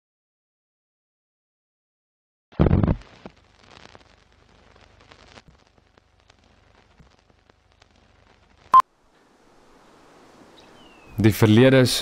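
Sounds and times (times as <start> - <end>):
faint hiss: 2.6 - 12.0
old film soundtrack crackle: 2.8 - 8.8.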